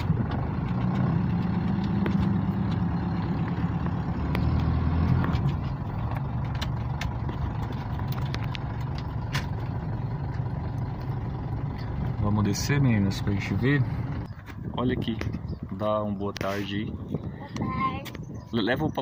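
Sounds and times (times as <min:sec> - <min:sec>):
car engine drone from inside: 0:00.0 - 0:16.1.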